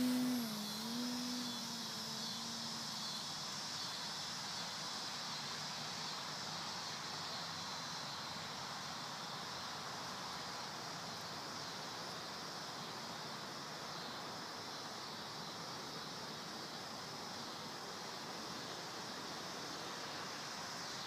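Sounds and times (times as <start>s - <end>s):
rc plane motor and propeller whine: 0.0s - 5.6s
steady outdoor hiss: 0.0s - 21.0s.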